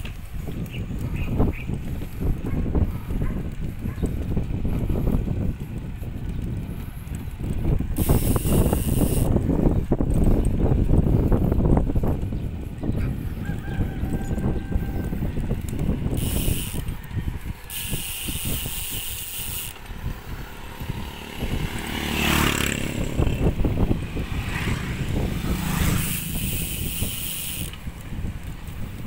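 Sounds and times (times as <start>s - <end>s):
bicycle chain rattling and ticking: 0.0s - 29.0s
wind buffeting microphone: 0.0s - 29.0s.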